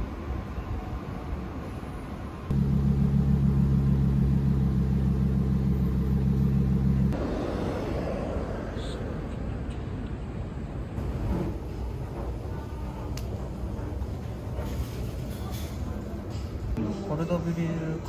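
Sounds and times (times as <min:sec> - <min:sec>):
street noise: 0:00.0 - 0:18.0
low mechanical drone: 0:02.4 - 0:09.4.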